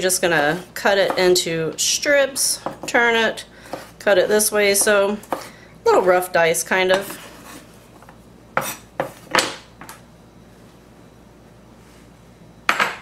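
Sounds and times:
bowl scraping on cutting board: 6.9 - 9.3.

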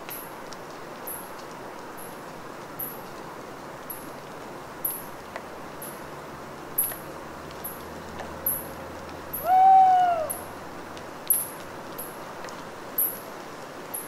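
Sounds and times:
water dripping from trees: 0.0 - 14.0
owl hoot: 9.4 - 10.5.

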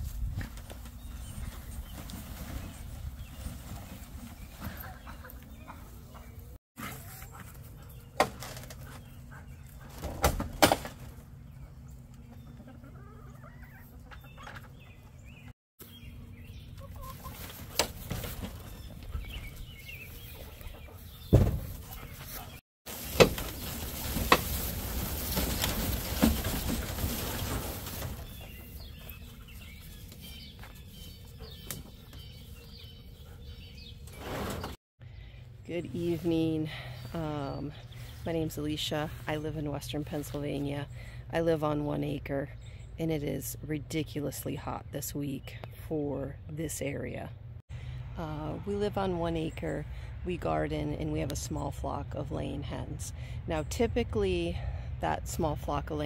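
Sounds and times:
hens clucking: 11.8 - 15.1, 16.8 - 19.3.

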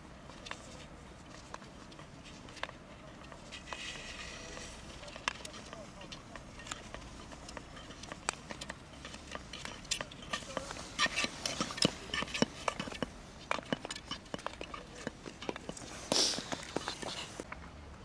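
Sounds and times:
ice skates clicking on ice: 0.2 - 17.5.

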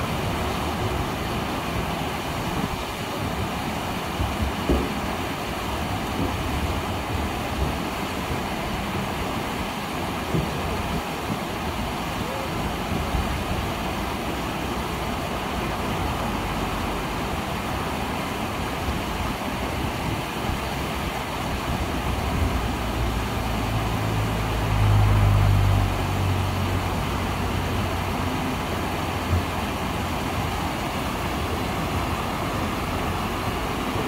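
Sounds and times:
waterfall rushing: 0.0 - 34.0
passing vehicle engine hum: 22.4 - 34.0.

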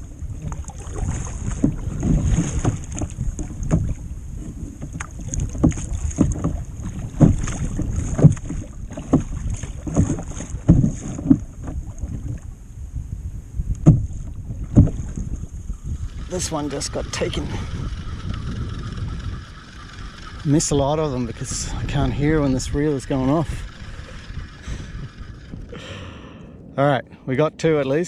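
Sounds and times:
paddle splashing in water: 0.0 - 12.7, 13.8 - 21.5
wind buffeting microphone: 0.0 - 28.0.

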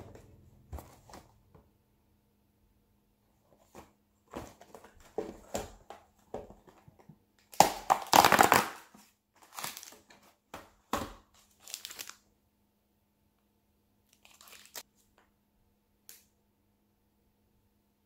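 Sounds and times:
plastic wrapper crinkling: 7.5 - 10.2, 11.4 - 12.2, 14.1 - 14.8.

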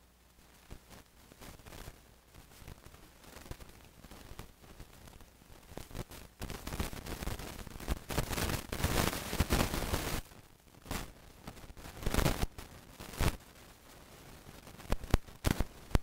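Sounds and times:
crackling and rustling: 0.0 - 16.0.

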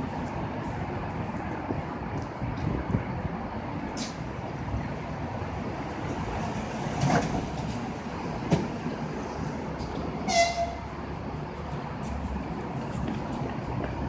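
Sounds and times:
brief high-pitched train toot: 10.3 - 10.8.

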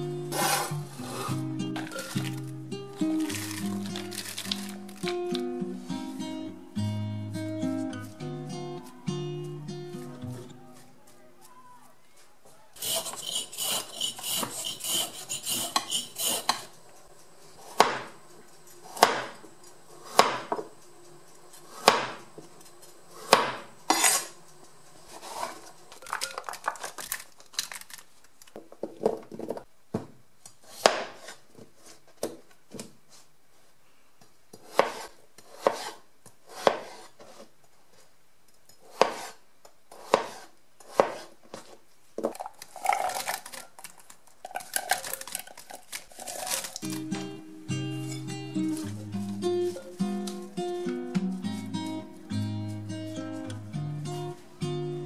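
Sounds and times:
knife chopping on cutting board: 17.7 - 18.1, 18.9 - 19.4, 20.1 - 20.7, 21.8 - 22.2, 23.2 - 24.3, 30.7 - 31.4, 34.6 - 37.4, 38.8 - 41.3.

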